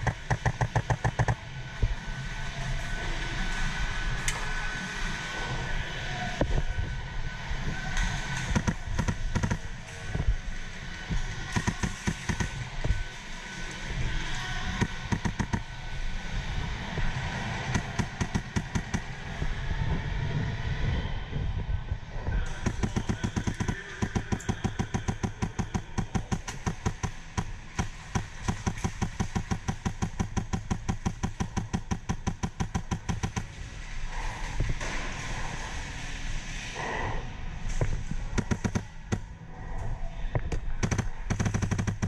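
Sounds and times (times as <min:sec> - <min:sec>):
arena background noise: 0:00.0 - 0:42.0
airsoft rifle firing: 0:08.5 - 0:09.7, 0:11.5 - 0:12.6, 0:14.7 - 0:15.6, 0:17.7 - 0:19.1, 0:22.6 - 0:33.5, 0:38.4 - 0:39.3, 0:40.8 - 0:42.0.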